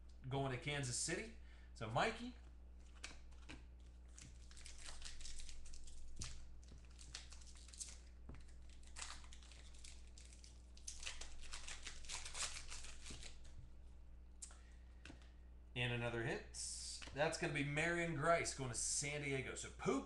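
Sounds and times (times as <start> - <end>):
foil wrapper crinkling and tearing: 2.9 - 13.5.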